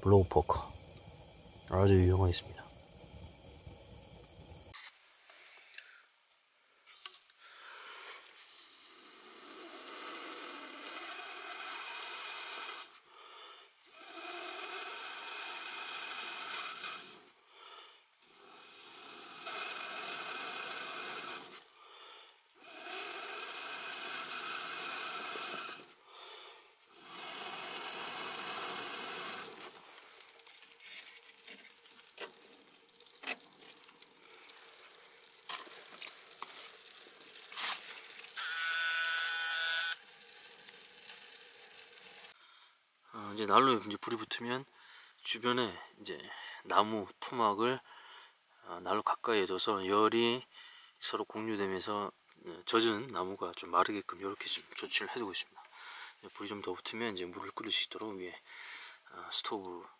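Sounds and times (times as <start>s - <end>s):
air blown through blow poker: 0.0s - 4.8s
kindling crackling and popping: 0.0s - 4.8s, 15.5s - 38.4s, 39.9s - 42.4s.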